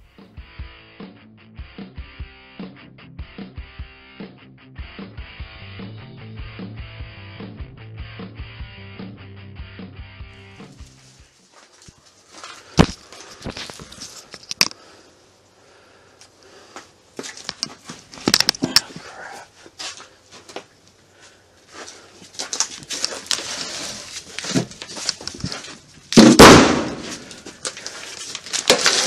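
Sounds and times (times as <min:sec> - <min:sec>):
handling clicks and rustling: 0:17.2 - 0:19.0, 0:21.8 - 0:26.2, 0:27.0 - 0:29.0.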